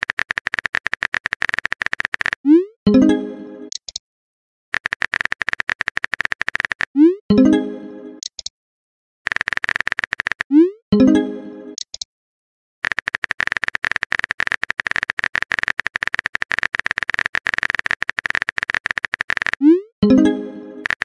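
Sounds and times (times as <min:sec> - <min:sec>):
keyboard typing clicks: 0:00.0 - 0:02.4, 0:03.7 - 0:04.0, 0:04.8 - 0:07.0, 0:08.2 - 0:08.5, 0:09.3 - 0:10.6, 0:11.8 - 0:12.1, 0:12.8 - 0:21.0
message chime: 0:02.9 - 0:03.7, 0:07.3 - 0:08.2, 0:11.0 - 0:11.8, 0:20.0 - 0:20.8.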